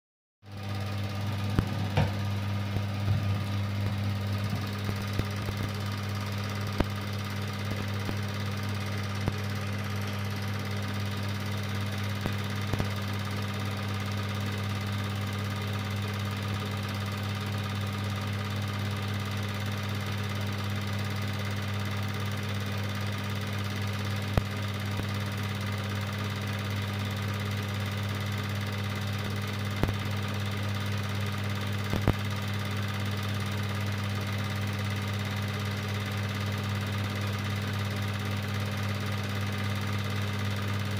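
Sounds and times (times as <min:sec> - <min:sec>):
film projector motor hum: 0:00.5 - 0:40.9
projector sharp clicks: 0:03.5 - 0:11.0, 0:11.9 - 0:13.2, 0:29.8 - 0:30.4, 0:31.8 - 0:32.6.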